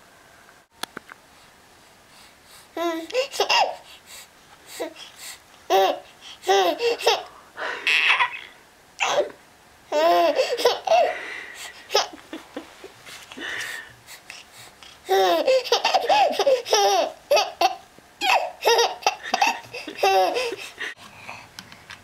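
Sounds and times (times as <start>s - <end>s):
infant laughing and babbling: 2.7s - 3.9s, 5.7s - 12.4s, 14.9s - 21.0s.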